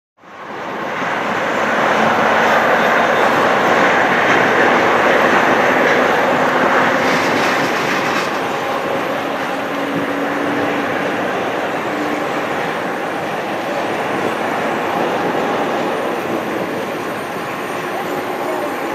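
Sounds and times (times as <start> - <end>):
jet engine roar with whine: 0.2 - 18.9.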